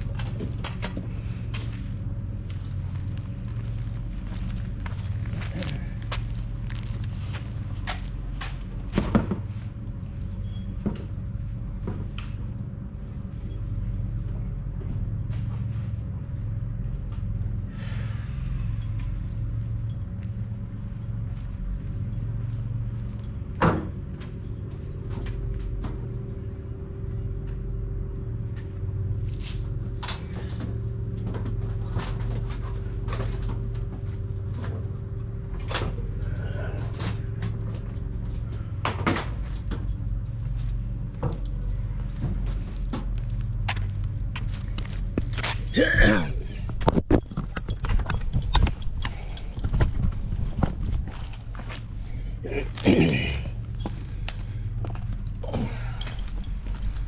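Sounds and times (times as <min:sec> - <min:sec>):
steady low hum: 0:00.0 - 0:57.0
metallic clicks and knocks of tools: 0:46.7 - 0:51.2.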